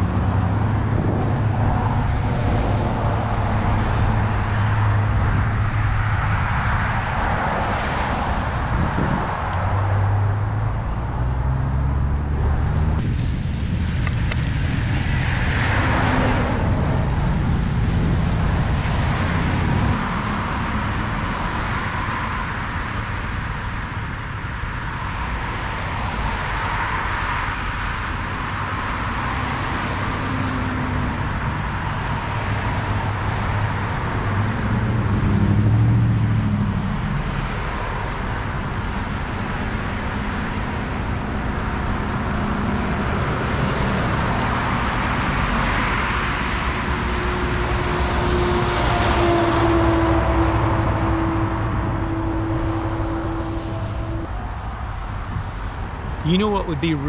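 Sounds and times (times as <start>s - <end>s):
cars passing: 0.0s - 57.0s
road noise: 0.0s - 57.0s.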